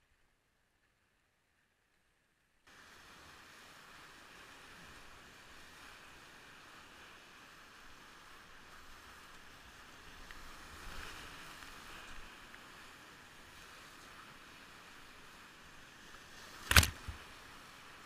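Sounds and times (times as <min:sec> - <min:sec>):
waves thudding on kayak bow: 0:16.2 - 0:17.8.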